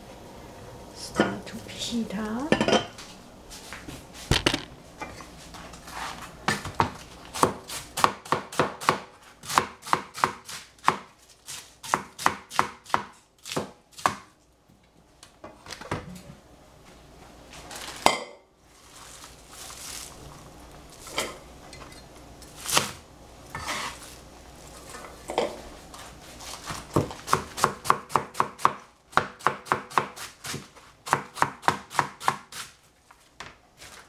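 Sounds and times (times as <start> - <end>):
knife chopping on cutting board: 6.5 - 14.3, 26.7 - 32.7.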